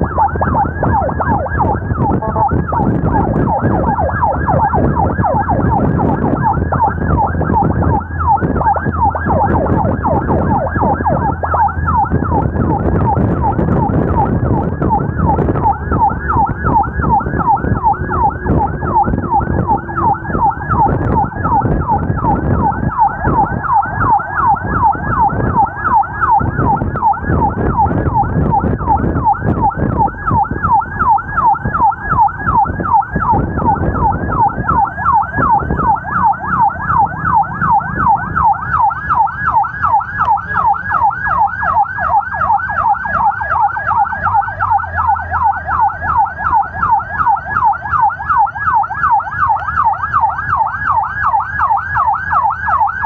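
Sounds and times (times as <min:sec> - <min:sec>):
siren yelping: 0:00.0 - 0:53.0
vehicle and road rumble: 0:00.0 - 0:53.0.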